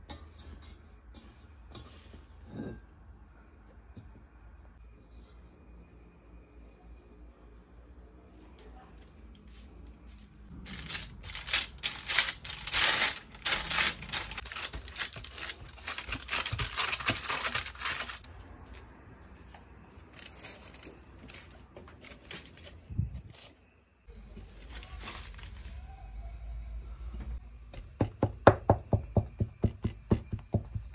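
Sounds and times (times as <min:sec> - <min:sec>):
parchment paper crinkling: 0:10.5 - 0:18.3, 0:20.0 - 0:23.6, 0:24.4 - 0:25.8.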